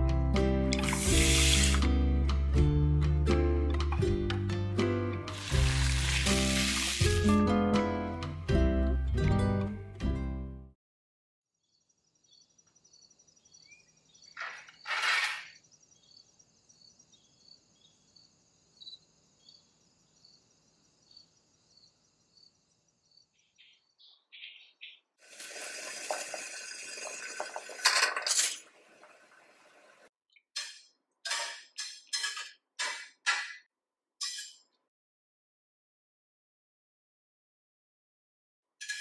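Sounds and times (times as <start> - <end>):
water running: 0.8 - 1.8, 5.3 - 7.3, 25.2 - 30.1.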